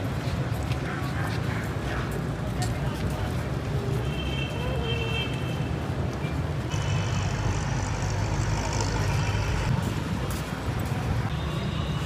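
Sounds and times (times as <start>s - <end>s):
heavy vehicle engine rumbling: 6.6s - 11.3s.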